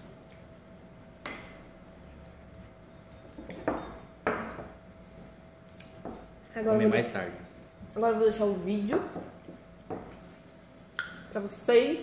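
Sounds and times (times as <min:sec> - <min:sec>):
metal spoons clinking against mugs: 0:02.9 - 0:04.1, 0:05.7 - 0:06.4.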